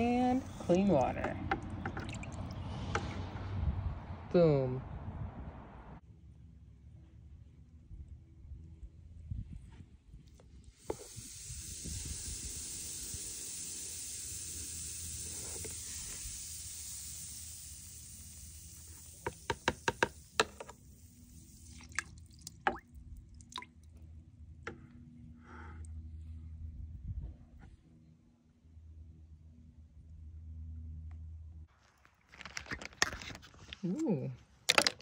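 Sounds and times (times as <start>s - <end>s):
acid fizzing hiss: 10.7s - 21.9s
spatula tapping on bucket: 19.2s - 20.7s.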